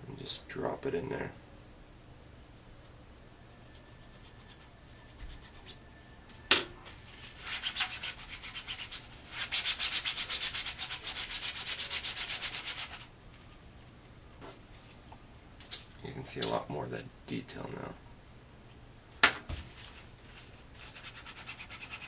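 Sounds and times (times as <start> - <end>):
cloth rag rubbing plastic: 3.6 - 5.9, 19.7 - 22.0.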